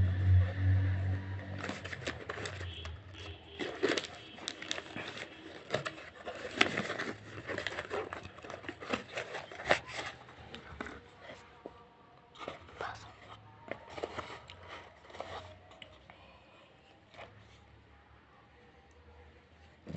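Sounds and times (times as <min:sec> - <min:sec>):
low hum: 0:00.0 - 0:02.6
cardboard clicks and rustles: 0:01.5 - 0:12.8, 0:13.7 - 0:15.8.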